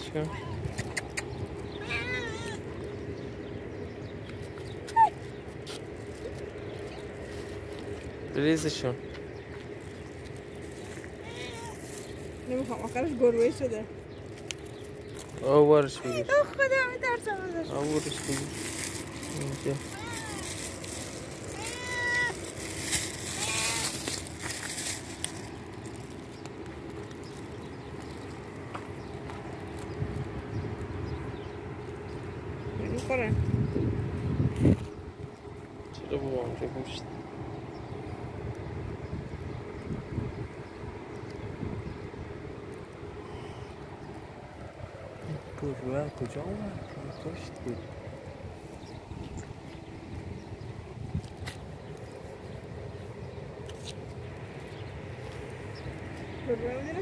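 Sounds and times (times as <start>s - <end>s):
cats meowing: 0.1s - 2.9s, 11.0s - 12.0s, 19.8s - 20.8s, 21.4s - 22.5s, 23.1s - 24.2s
rustling: 4.3s - 30.3s.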